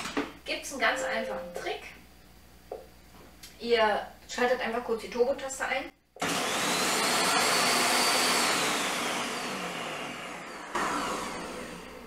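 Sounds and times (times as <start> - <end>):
food processor motor whining: 6.2 - 12.0.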